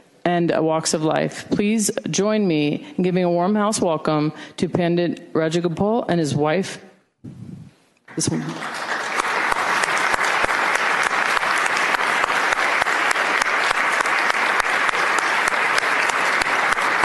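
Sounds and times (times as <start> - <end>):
crowd applause: 8.1 - 17.0.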